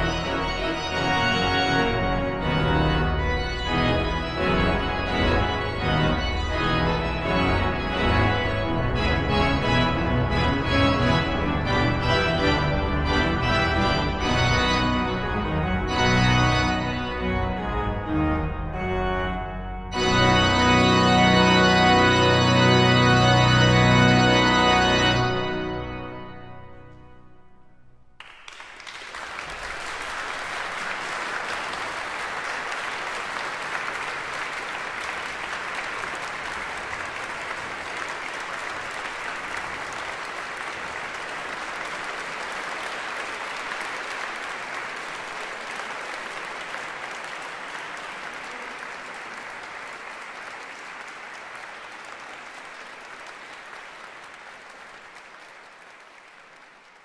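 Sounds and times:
audience applauding: 28.2s - 57.0s.

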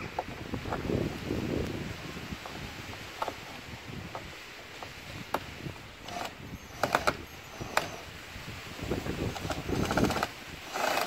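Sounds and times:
drill running with rattly clicking: 6.0s - 8.1s, 9.2s - 11.0s.

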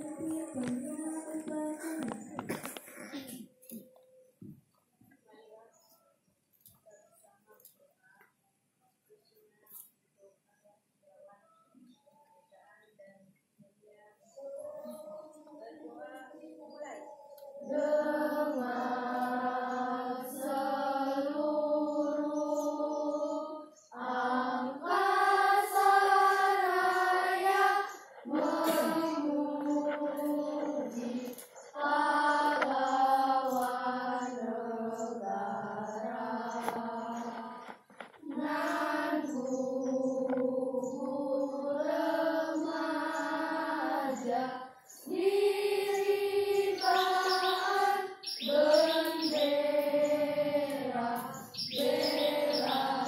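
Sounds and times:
children's choir singing: 0.0s - 3.4s, 14.4s - 53.0s.

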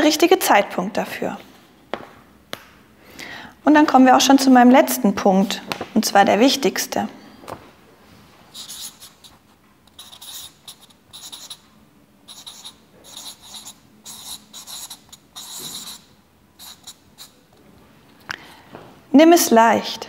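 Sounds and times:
marker squeaking on paper: 8.5s - 11.6s, 12.3s - 17.4s.

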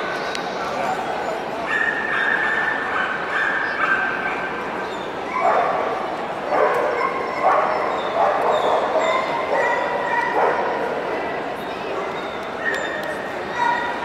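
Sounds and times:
dog yipping and barking: 6.5s - 10.7s.

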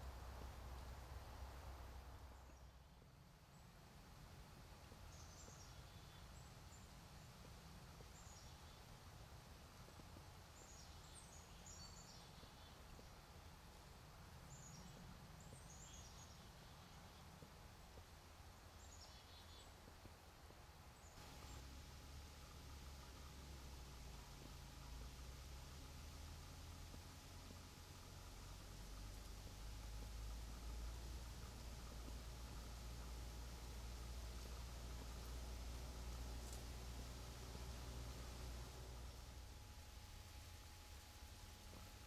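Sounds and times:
low background rumble: 0.0s - 42.0s
small birds chirping: 2.3s - 42.0s.

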